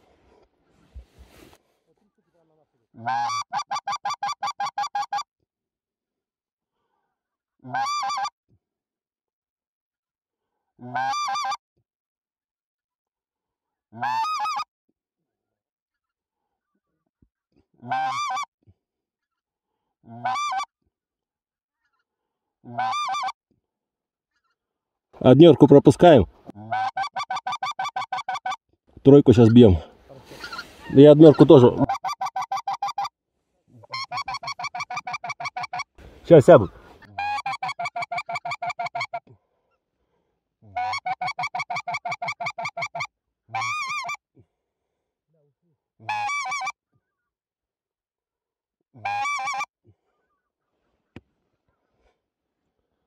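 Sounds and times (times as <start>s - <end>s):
goose call honks: 3.0s - 5.2s, 40.7s - 44.2s, 46.0s - 46.7s, 49.0s - 49.7s.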